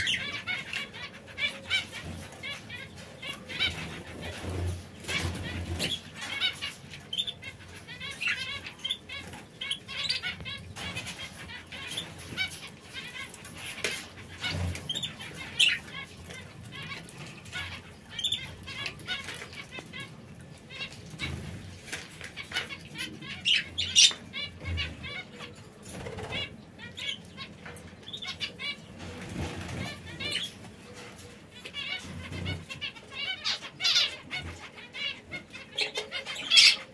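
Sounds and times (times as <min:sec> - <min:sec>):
canaries chirping: 0:00.0 - 0:36.9
wings fluttering: 0:29.0 - 0:30.7.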